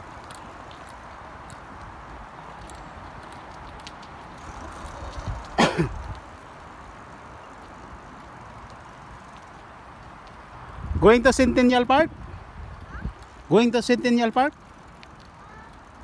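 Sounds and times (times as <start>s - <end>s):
outdoor background noise: 0.0s - 16.0s
person coughing: 5.6s - 6.0s.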